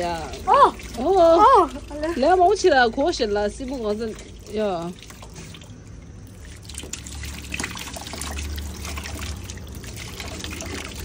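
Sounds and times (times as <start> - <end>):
liquid trickling and pouring: 0.0 - 11.0.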